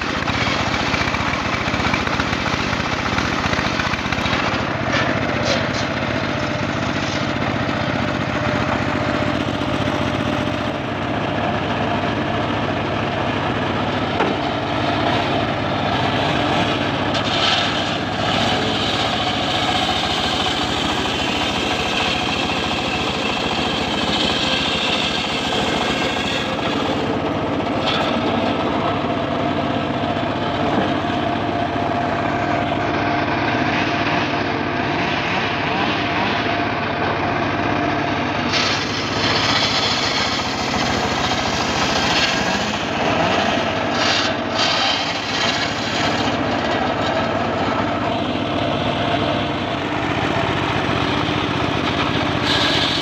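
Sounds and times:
saw blade cutting wood: 0.0s - 10.9s, 13.8s - 32.8s, 38.4s - 53.0s
sawmill engine running: 0.0s - 53.0s.

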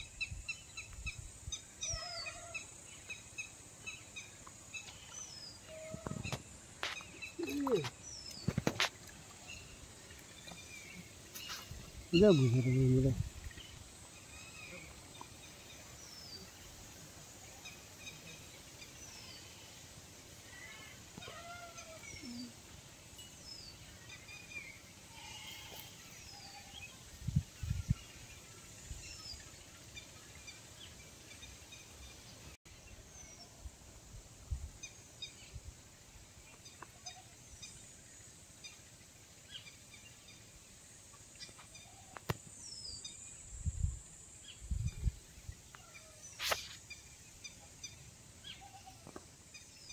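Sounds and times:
small birds chirping: 0.0s - 16.8s.

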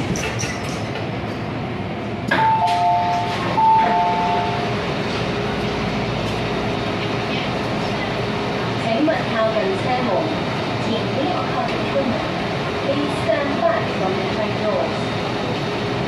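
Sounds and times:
train doors sliding open: 0.0s - 1.5s, 2.2s - 5.4s
stopped train humming: 0.0s - 16.0s
two-note door chime: 2.4s - 4.6s.

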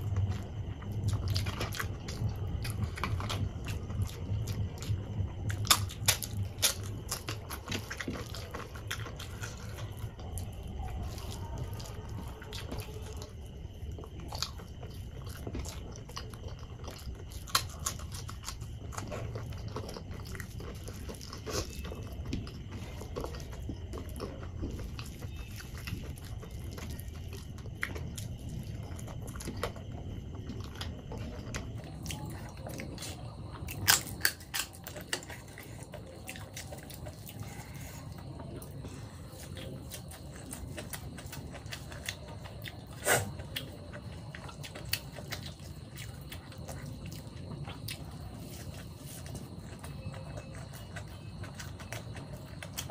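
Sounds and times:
person chewing food: 0.0s - 52.9s
loud crunches of biting: 31.9s - 49.6s.

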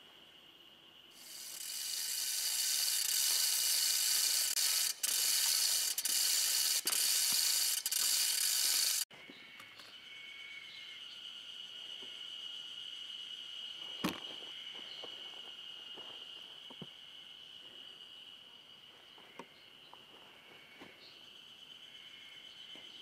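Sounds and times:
chain block rattling and clicking: 1.8s - 9.0s.

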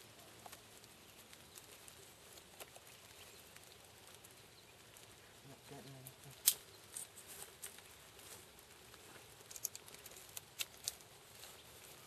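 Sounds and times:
stick cracking and scraping in wood: 9.0s - 11.6s.

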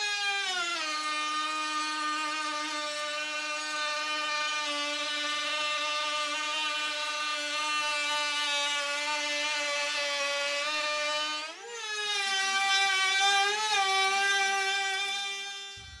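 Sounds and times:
router whining: 0.0s - 16.0s.

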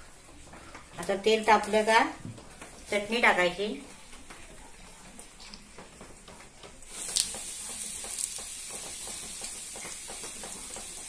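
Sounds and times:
chilli sizzling in hot oil: 6.8s - 11.0s.

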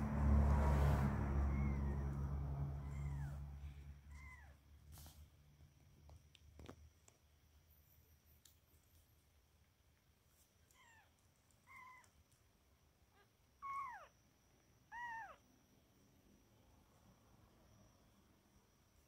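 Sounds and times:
kitten mewing: 2.8s - 3.4s.

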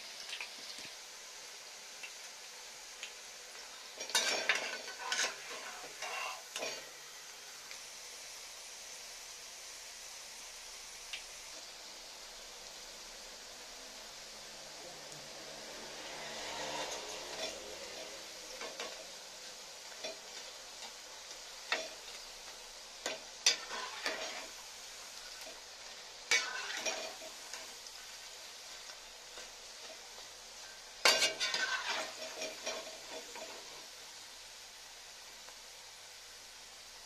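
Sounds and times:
fritters sizzling in hot oil: 0.0s - 37.0s
skimmer scraping pan: 4.0s - 6.9s, 15.8s - 19.1s, 23.0s - 24.6s, 25.2s - 28.1s, 28.7s - 33.8s.

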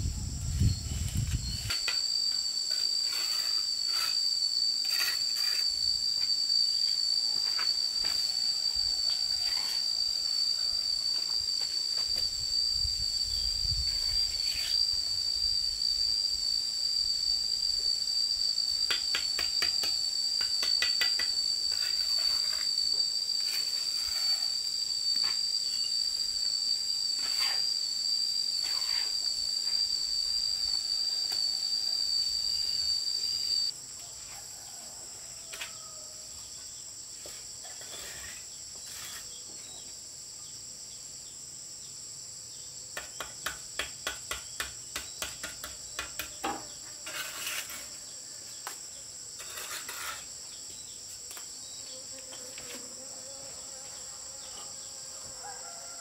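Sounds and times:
insects droning: 0.0s - 56.0s.

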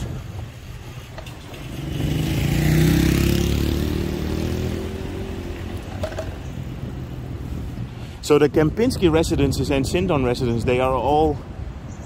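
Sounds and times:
vehicle engine and tyre noise: 0.0s - 12.0s.

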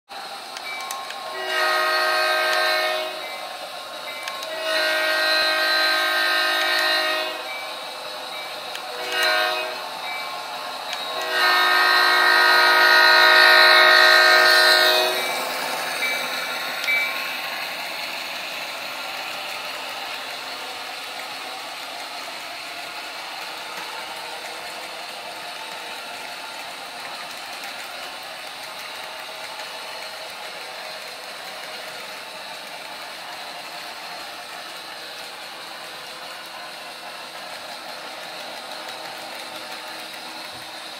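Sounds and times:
train wheels rumbling on track: 0.2s - 40.9s
locomotive horn blasts: 1.3s - 3.3s, 4.4s - 7.5s, 8.8s - 10.0s, 11.0s - 15.4s.

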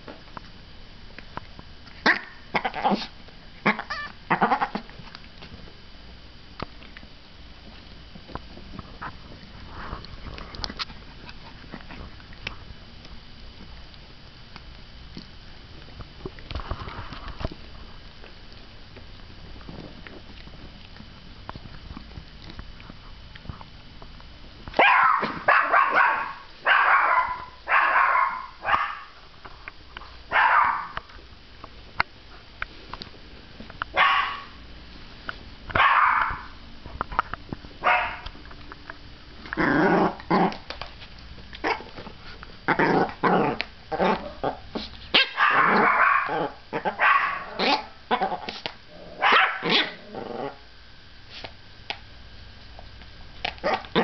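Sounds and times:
dog growling barks: 2.0s - 4.9s, 24.8s - 29.1s, 30.3s - 31.0s, 35.8s - 36.5s, 39.5s - 40.6s, 42.7s - 50.6s, 53.6s - 54.0s
small dog barking: 24.8s - 29.1s, 30.3s - 31.0s, 33.9s - 34.6s, 35.7s - 36.5s, 37.8s - 38.2s, 44.0s - 48.3s, 49.2s - 50.0s.

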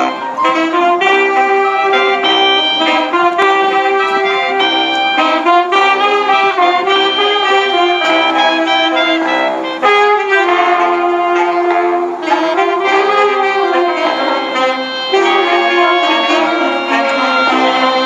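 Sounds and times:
wind band playing klezmer: 0.0s - 18.0s.

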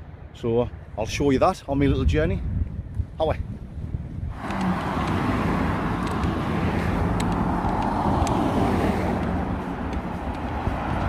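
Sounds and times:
cars driving past: 4.3s - 11.0s.

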